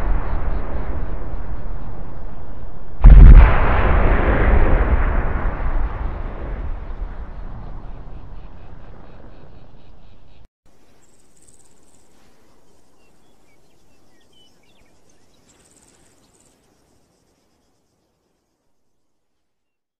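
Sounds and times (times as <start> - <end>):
deep explosion rumble: 0.0 - 9.8
faint bird chirps: 7.1 - 19.9
insects trilling: 10.7 - 19.1.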